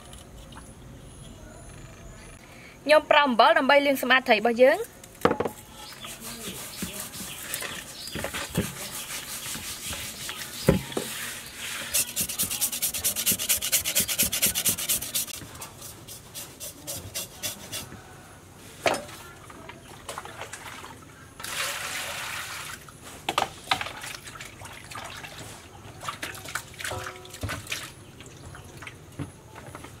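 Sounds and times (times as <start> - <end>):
salt scraping fish skin: 11.6 - 17.9
knife scraping fish skin: 11.8 - 17.9.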